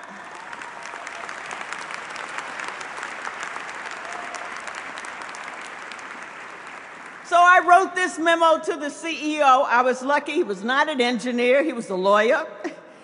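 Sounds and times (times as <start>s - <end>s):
audience applause: 0.0s - 7.3s.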